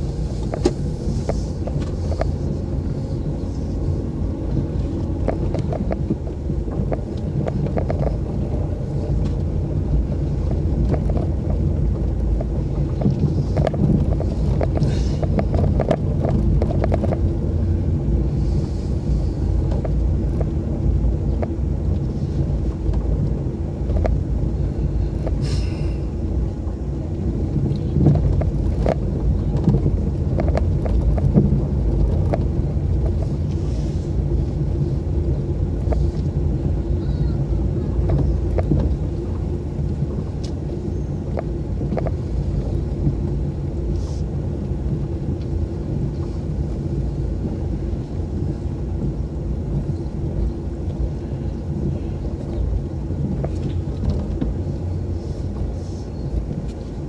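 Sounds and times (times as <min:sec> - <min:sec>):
car engine and tyre rumble: 0:00.0 - 0:57.0
small rattles and clicks: 0:04.5 - 0:17.6, 0:27.5 - 0:34.4, 0:37.9 - 0:40.7, 0:41.3 - 0:46.7.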